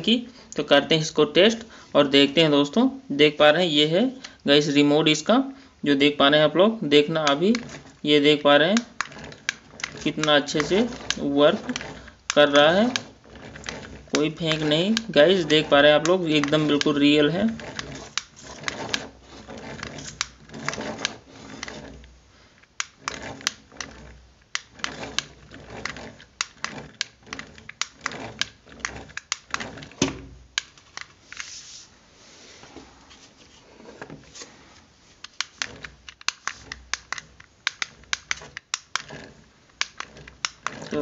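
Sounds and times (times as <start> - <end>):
remote control clicking and tapping: 35.2 - 39.2.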